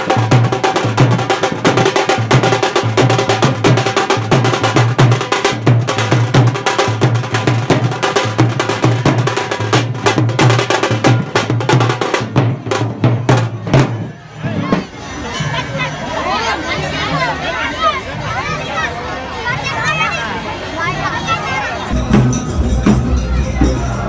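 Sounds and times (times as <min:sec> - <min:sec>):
drum band playing fast rhythm: 0:00.0 - 0:15.0, 0:21.9 - 0:24.0.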